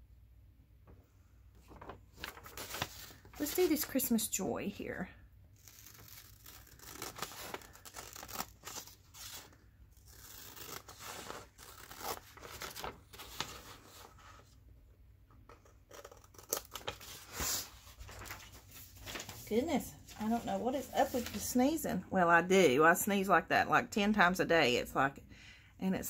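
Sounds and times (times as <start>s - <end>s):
paper rustling: 1.5s - 4.1s, 5.6s - 14.6s, 15.6s - 21.7s
scissors cutting paper: 5.6s - 8.9s, 10.1s - 12.8s.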